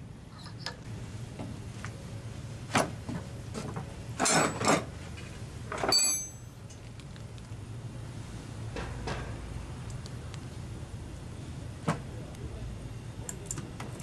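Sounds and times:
steady low hum: 0.0s - 14.0s
high metallic ring: 5.9s - 6.6s.

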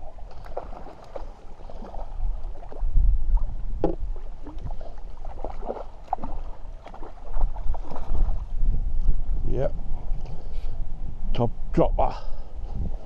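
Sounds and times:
fish splashing in water: 0.0s - 2.8s, 4.4s - 8.4s
wind buffeting microphone: 0.0s - 13.0s.

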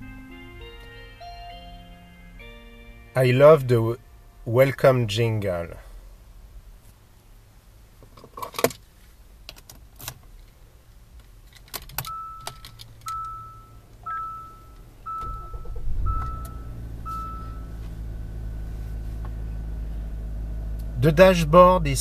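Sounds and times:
car warning chime: 0.0s - 5.7s, 12.0s - 18.6s
car engine starting and idling: 0.0s - 22.0s
keys clicking and rattling: 11.4s - 13.4s.

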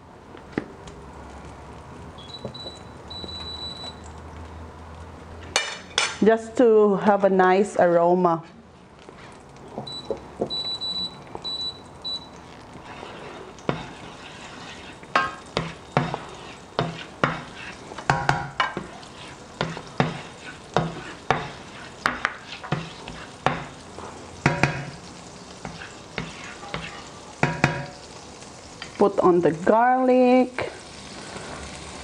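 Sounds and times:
oil sizzling in a frying pan: 9.2s - 32.0s
spatula scraping a pan: 12.7s - 27.9s.

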